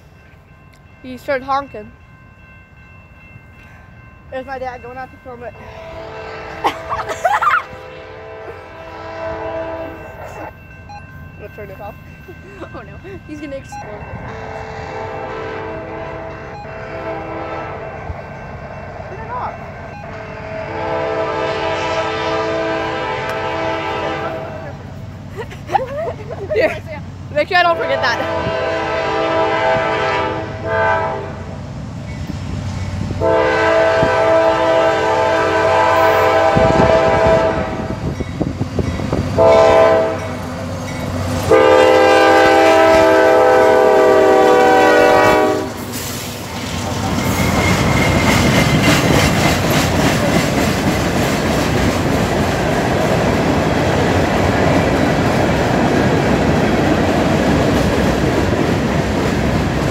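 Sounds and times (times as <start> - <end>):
freight train rolling past: 0.0 - 59.9
locomotive horn blasts: 5.6 - 6.9, 7.7 - 10.5, 14.2 - 18.4, 20.0 - 24.8, 27.7 - 31.5, 33.2 - 38.1, 39.4 - 40.4, 41.5 - 45.9
wheels clacking over rail joints: 45.9 - 59.9.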